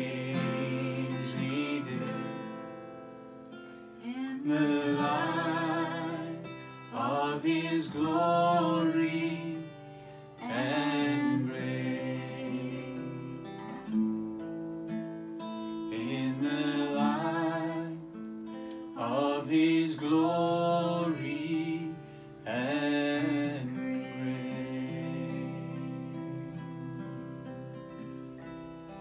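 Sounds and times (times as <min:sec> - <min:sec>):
man singing worship song: 0:00.0 - 0:02.2, 0:04.4 - 0:09.7, 0:10.4 - 0:13.2, 0:15.9 - 0:18.0, 0:19.0 - 0:27.1
strummed acoustic guitar: 0:00.0 - 0:29.0.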